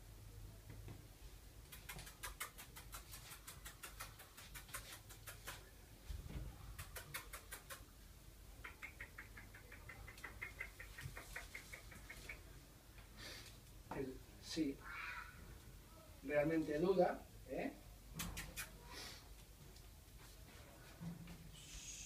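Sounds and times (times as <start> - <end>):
mouth clicking noises: 1.6 - 5.8, 6.7 - 12.6, 18.1 - 18.9
squeaky kissing sounds: 18.2 - 18.8.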